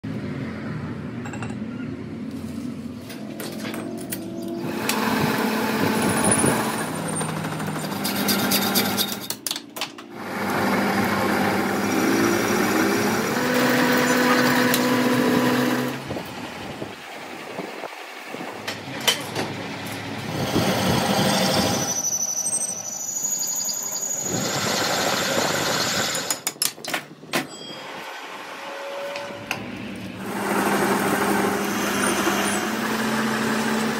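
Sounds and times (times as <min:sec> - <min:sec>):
shop machinery: 0:00.0 - 0:33.9
metal lathe running: 0:04.2 - 0:09.3, 0:10.1 - 0:26.4, 0:27.6 - 0:33.9.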